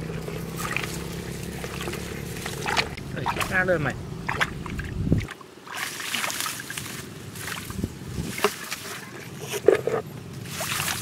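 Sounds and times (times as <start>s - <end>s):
muddy water sloshing and splashing: 0.0s - 11.0s.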